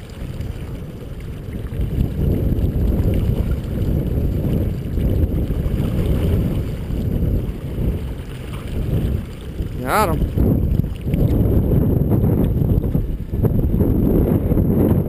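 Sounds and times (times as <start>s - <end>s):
water washing around boat: 0.0s - 15.0s
wind rumbling on microphone: 0.0s - 15.0s.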